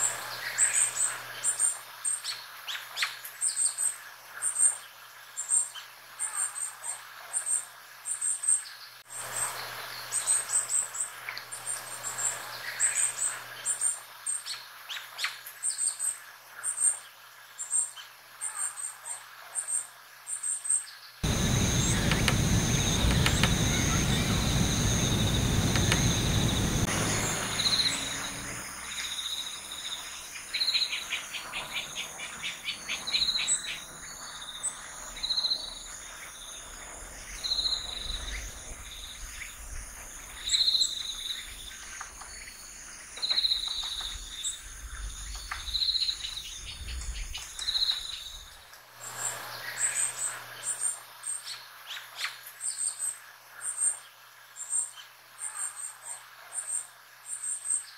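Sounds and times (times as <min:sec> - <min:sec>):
high-pitched insect chirping: 0:21.2 - 0:32.3.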